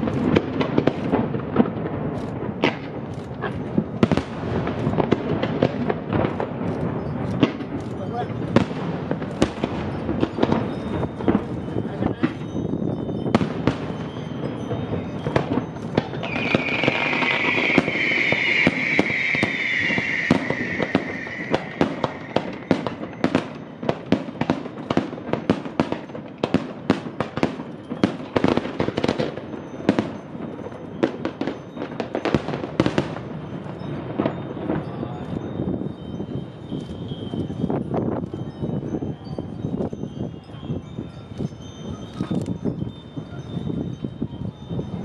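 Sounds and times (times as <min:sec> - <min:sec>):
fireworks bangs and cracks: 0:00.0 - 0:41.1
high falling whistle: 0:16.2 - 0:23.2.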